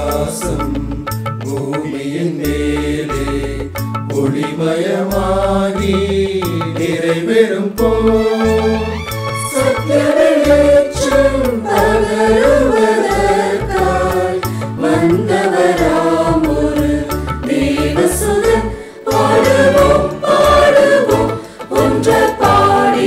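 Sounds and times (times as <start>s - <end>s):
mixed choir singing in harmony: 0.0s - 23.0s
low bass line: 7.8s - 22.9s.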